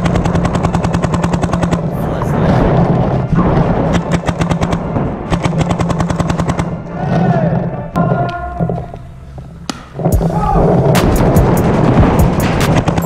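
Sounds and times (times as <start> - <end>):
paintball marker firing: 3.4 - 6.8.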